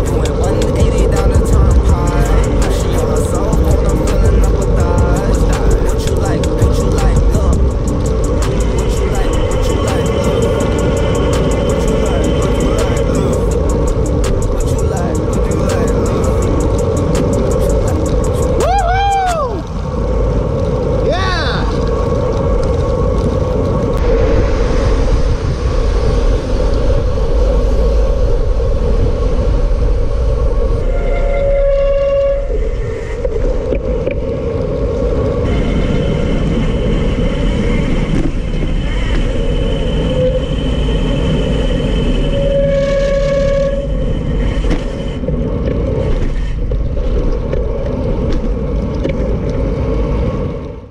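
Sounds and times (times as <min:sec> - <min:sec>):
high squeal: 0:00.0 - 0:19.7, 0:24.0 - 0:33.6, 0:35.4 - 0:45.3
tyres hissing on wet road: 0:00.0 - 0:30.8
wind buffeting microphone: 0:00.0 - 0:50.9.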